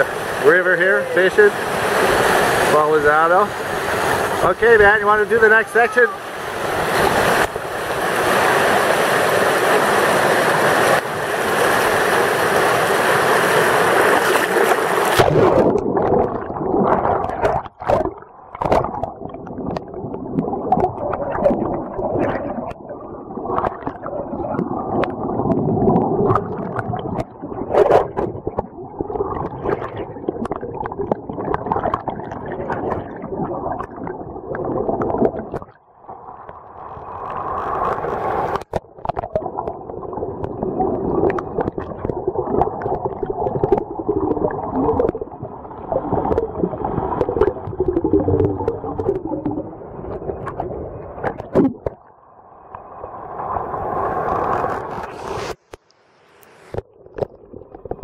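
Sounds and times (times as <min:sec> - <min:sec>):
whitewater rapids rushing: 0:00.0 - 0:15.6
underwater churning and bubbles: 0:00.0 - 0:58.0.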